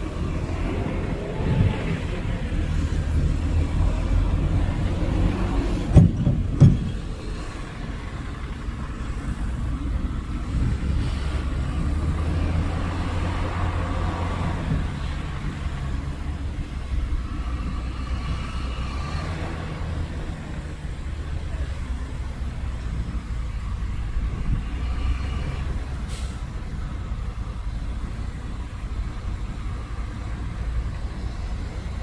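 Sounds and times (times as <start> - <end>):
heavy diesel engine running: 0.0 - 32.0
sharp knocks: 5.9 - 7.0.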